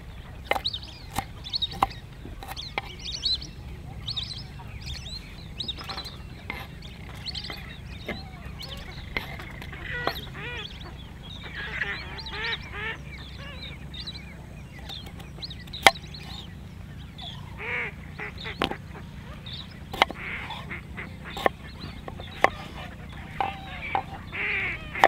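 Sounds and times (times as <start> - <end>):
duck-like bird calls: 0.0 - 25.0
knife striking wooden chopping board: 15.8 - 16.0, 19.9 - 20.2.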